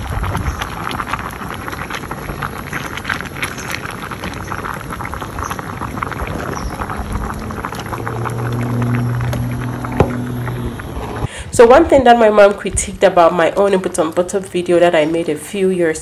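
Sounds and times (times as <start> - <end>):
pot boiling and bubbling: 0.0 - 16.0.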